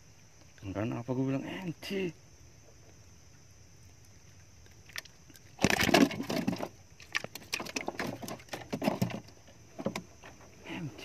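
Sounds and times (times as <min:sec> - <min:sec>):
fish splashing in water: 0:04.8 - 0:09.3
fish knocking against planks: 0:04.9 - 0:10.1.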